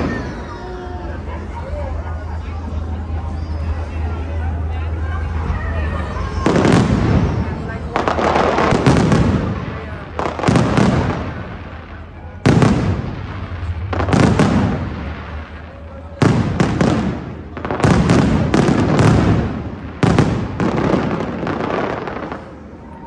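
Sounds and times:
rumbling echo: 0:00.0 - 0:23.0
firework shells booming: 0:06.4 - 0:22.6.

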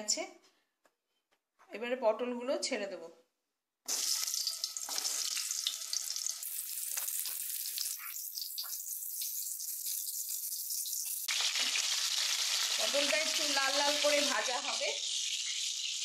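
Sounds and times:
vegetables sizzling in hot oil: 0:03.9 - 0:16.0.

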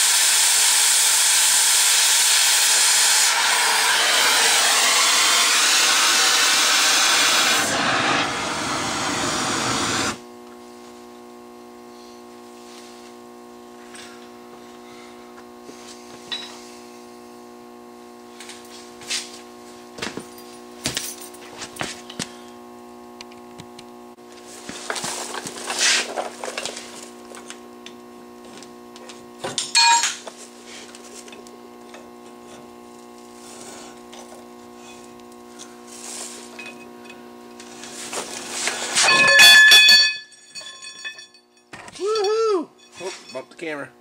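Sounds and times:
steady electrical hum: 0:03.7 - 0:44.0
loud ringing metal clang: 0:29.7 - 0:30.2, 0:39.0 - 0:41.7
metal tools clinking and knocking: 0:29.7 - 0:30.3, 0:39.0 - 0:43.6.

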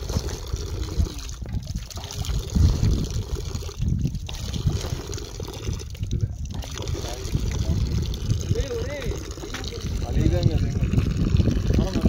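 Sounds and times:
low rumbling on microphone: 0:00.0 - 0:12.0
water running and splashing: 0:00.0 - 0:12.0.

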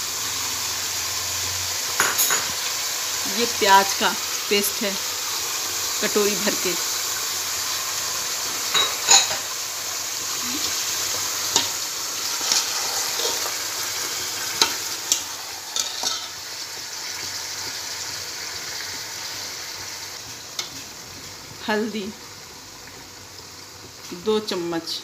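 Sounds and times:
meat sizzling in hot oil: 0:00.0 - 0:25.0
metal spoon scraping pot: 0:11.5 - 0:13.6.

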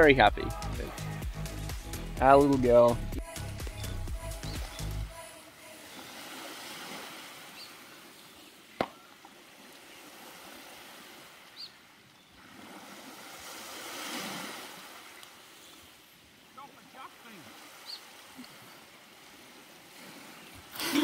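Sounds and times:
waves washing onto beach: 0:05.1 - 0:21.0.

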